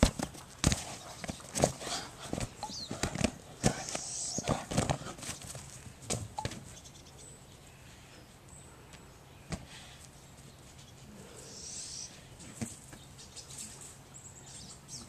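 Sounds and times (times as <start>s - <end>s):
dog paws and ball thumping: 0.0s - 6.7s, 12.4s - 13.0s.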